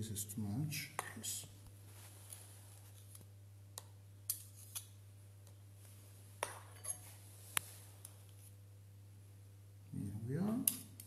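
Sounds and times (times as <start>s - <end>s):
faint low hum: 0.0s - 11.0s
spoon clinking on metal moulds: 6.4s - 7.2s.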